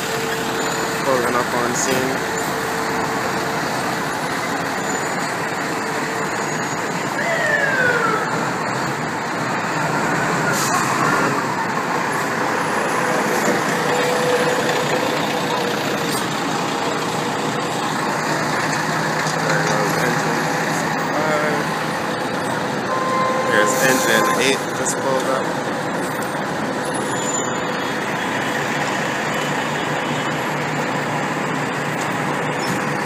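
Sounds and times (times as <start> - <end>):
city traffic noise: 0.0 - 33.0
fire engine diesel engine: 0.0 - 33.0
short falling whine: 22.9 - 25.4.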